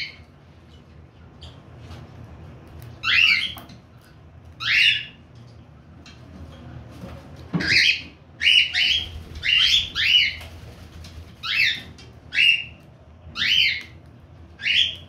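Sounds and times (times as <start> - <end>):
cockatiels calling: 3.0 - 3.7, 4.6 - 5.2, 7.6 - 10.5, 11.4 - 14.0, 14.6 - 15.0.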